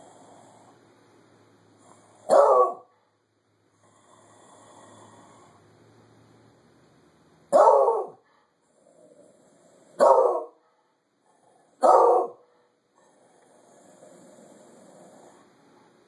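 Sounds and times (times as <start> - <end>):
dog barking: 2.3 - 2.9, 7.5 - 8.2, 10.0 - 10.6, 11.8 - 12.5.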